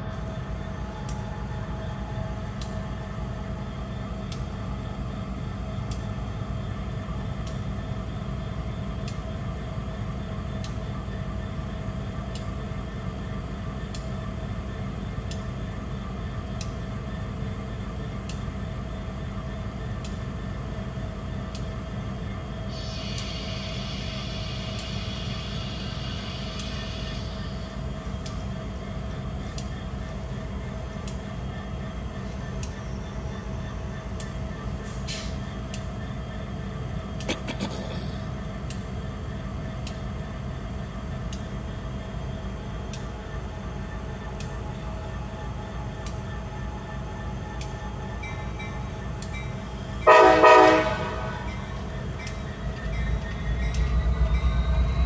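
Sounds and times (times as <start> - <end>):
locomotive engine rumble: 0.0 - 55.0
hiss: 22.7 - 27.4.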